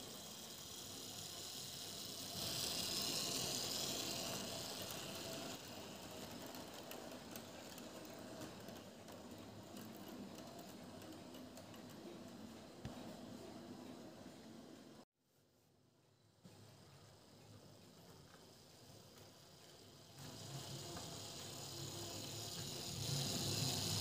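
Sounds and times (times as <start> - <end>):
small wheels rattling on rails: 0.0 - 12.8, 17.9 - 24.0.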